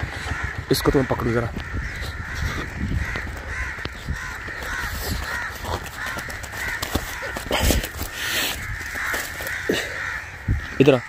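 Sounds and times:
crows cawing: 0.0 - 11.0
footsteps in dry grass: 1.5 - 10.4.

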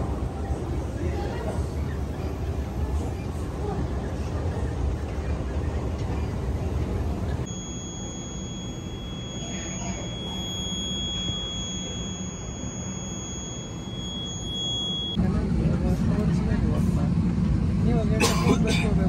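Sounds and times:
terminal background rumble: 0.0 - 19.0
low hum: 1.8 - 17.9
high-pitched whine: 7.4 - 15.2.

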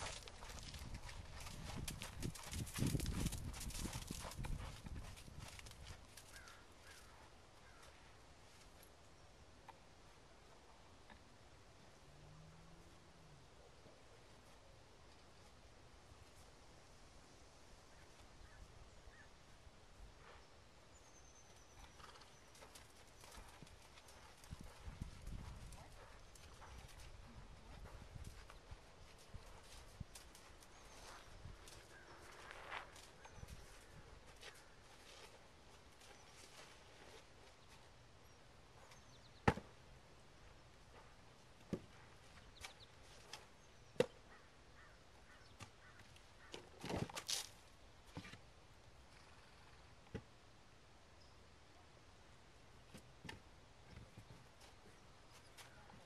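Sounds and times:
horse hoofbeats on sand: 0.0 - 7.1, 21.6 - 37.9.

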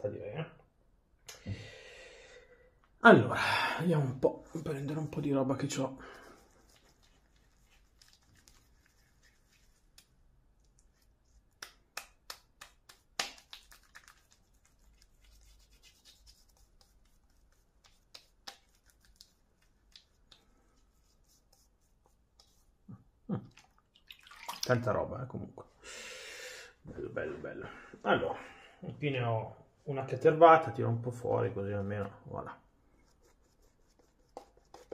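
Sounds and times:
wet clicks of shaving lather: 9.8 - 20.6.

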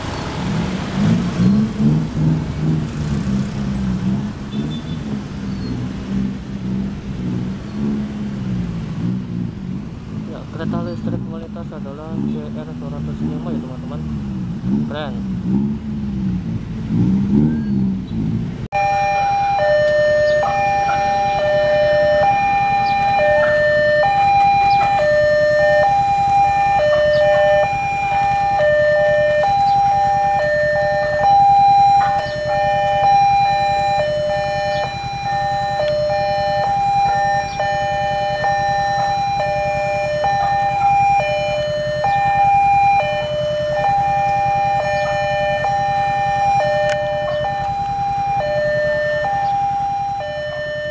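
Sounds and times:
motorcycle engines: 0.0 - 50.9
level crossing alarm two-tone signal: 18.7 - 50.9.

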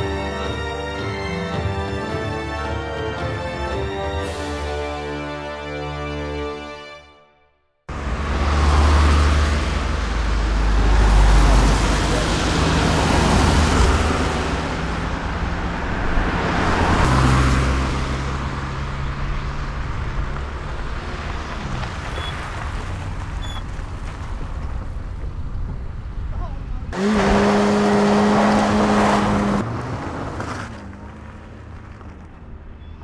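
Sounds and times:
cars passing: 7.9 - 33.0.

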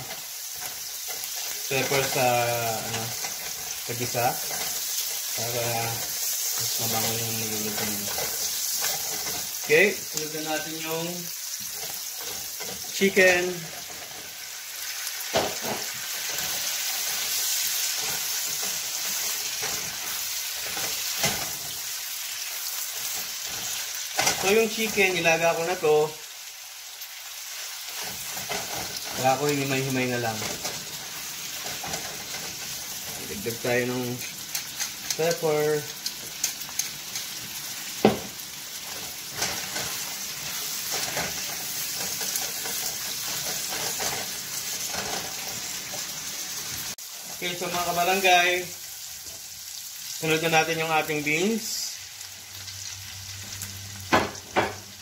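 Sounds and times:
spatula scraping pan: 0.0 - 14.4, 27.6 - 35.5, 36.1 - 46.9
chicken sizzling in hot oil: 0.0 - 55.0.

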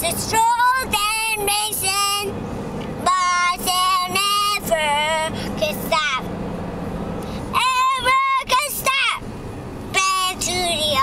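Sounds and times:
boy singing: 0.0 - 2.3, 3.0 - 6.3, 7.5 - 9.2, 9.9 - 11.0
car road noise: 0.0 - 11.0.

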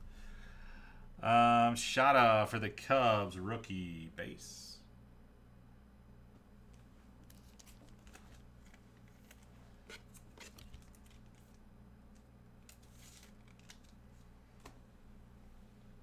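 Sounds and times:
low steady hum: 0.0 - 16.0
trading cards rustling: 7.2 - 14.8.

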